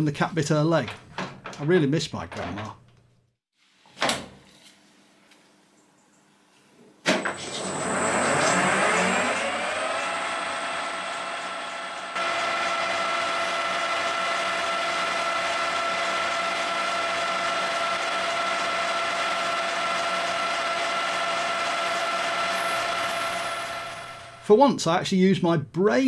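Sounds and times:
lathe spindle whining: 0:07.3 - 0:24.5.

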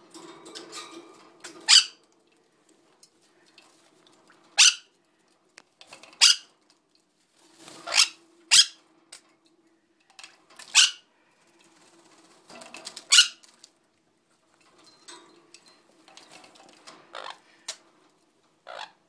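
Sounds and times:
parrot squawking: 0:01.6 - 0:02.0, 0:04.6 - 0:04.9, 0:06.2 - 0:06.5, 0:07.9 - 0:08.8, 0:10.7 - 0:11.1, 0:13.1 - 0:13.4, 0:18.6 - 0:19.0.

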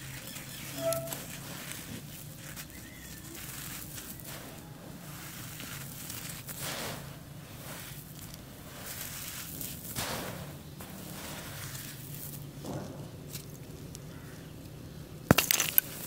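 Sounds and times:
charcoal powder crunchy rustles: 0:00.0 - 0:16.0
pouring hiss: 0:03.5 - 0:12.8.

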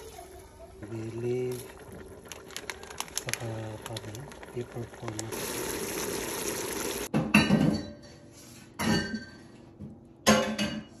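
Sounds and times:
stew bubbling in a pot: 0:00.0 - 0:07.1.

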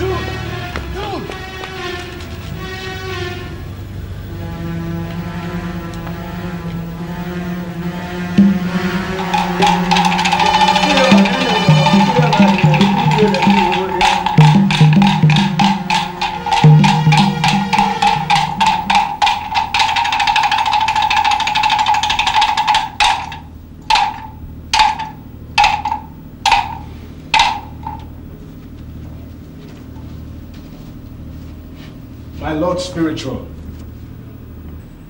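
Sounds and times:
held tone and low drone: 0:04.2 - 0:29.3
percussion strikes: 0:07.7 - 0:28.3.

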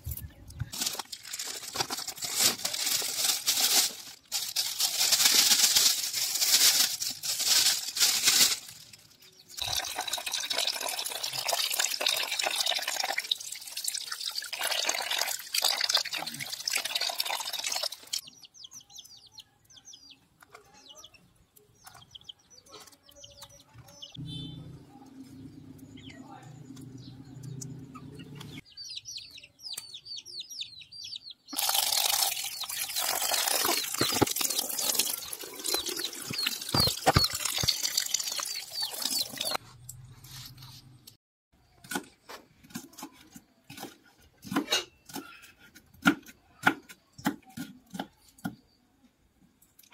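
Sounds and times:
faint bird chirps: 0:18.3 - 0:31.5.

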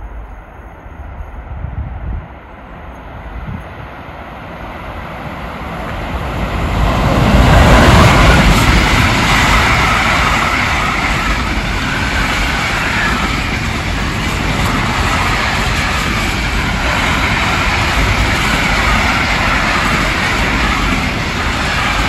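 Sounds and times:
freight train passing: 0:00.0 - 0:22.0
wagons rolling on rails: 0:07.2 - 0:22.0.

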